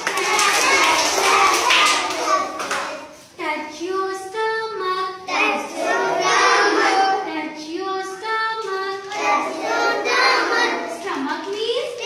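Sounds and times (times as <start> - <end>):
children singing in unison: 5.3 - 7.2, 9.1 - 11.0.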